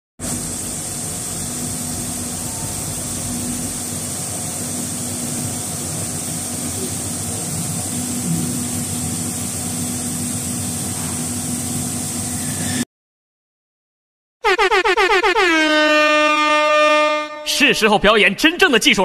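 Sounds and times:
machinery low hum: 0:00.2 - 0:12.8.

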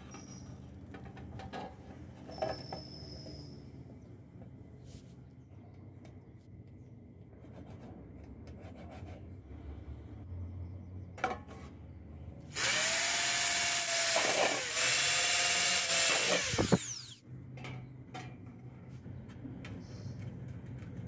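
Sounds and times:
electric drill drilling sheet metal: 0:12.5 - 0:17.2.

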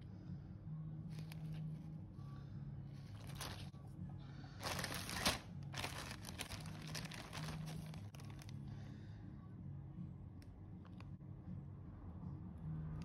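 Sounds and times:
faint low hum: 0:00.0 - 0:13.0
plastic bags crinkling: 0:03.1 - 0:03.7, 0:04.6 - 0:08.5.

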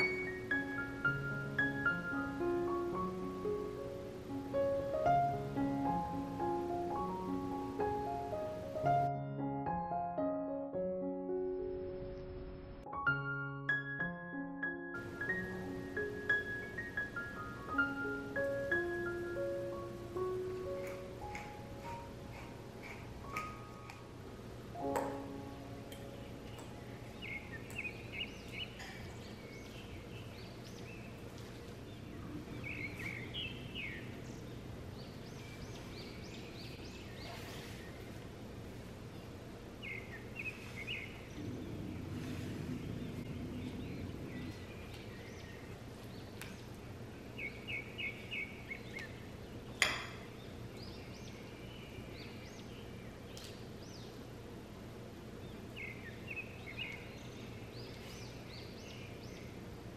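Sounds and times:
low steady hum: 0:15.0 - 0:59.9
bird-like chirps: 0:25.0 - 0:31.2, 0:32.0 - 0:38.2.

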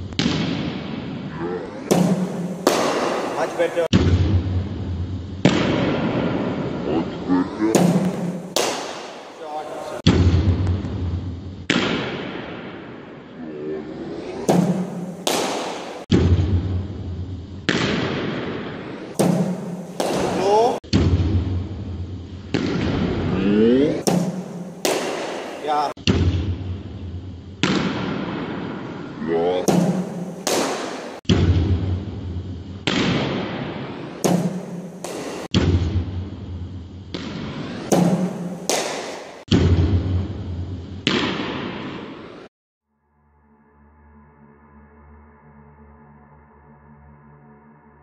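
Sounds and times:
steady low hum: 0:00.0 - 0:42.5
echoing cricket ball bangs: 0:00.1 - 0:01.2, 0:01.8 - 0:04.6, 0:05.4 - 0:06.8, 0:07.7 - 0:11.1, 0:14.4 - 0:16.7, 0:17.6 - 0:21.6, 0:22.4 - 0:23.3, 0:24.0 - 0:26.8, 0:27.6 - 0:32.1, 0:32.8 - 0:42.5.

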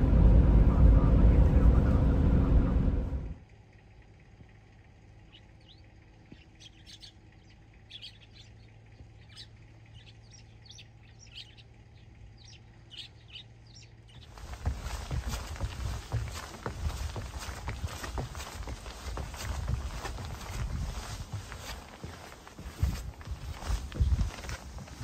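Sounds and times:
low steady hum: 0:00.0 - 0:25.0
small birds chirping: 0:04.0 - 0:25.0
train running: 0:14.2 - 0:25.0.

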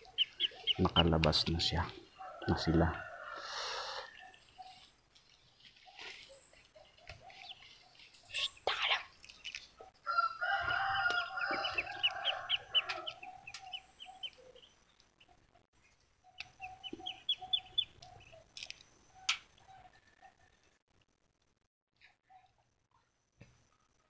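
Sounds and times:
chickens clucking: 0:00.0 - 0:04.9, 0:09.5 - 0:15.6, 0:16.2 - 0:18.5
rooster crowing: 0:02.2 - 0:04.4, 0:10.0 - 0:13.8.

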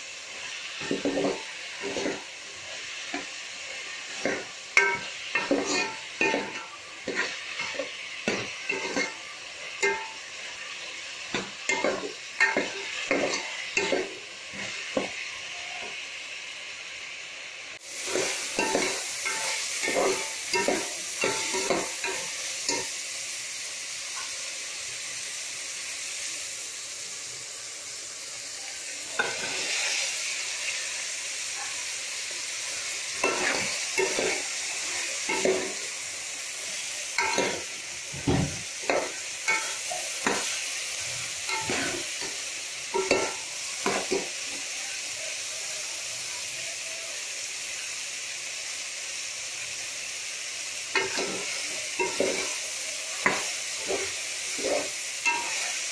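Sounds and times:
vegetables sizzling in oil: 0:00.0 - 0:55.9
metal spoon scraping and stirring: 0:04.1 - 0:09.1.

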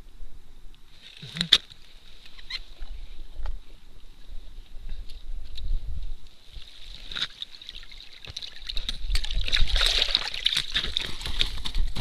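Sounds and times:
water splashing and trickling: 0:06.4 - 0:12.0.

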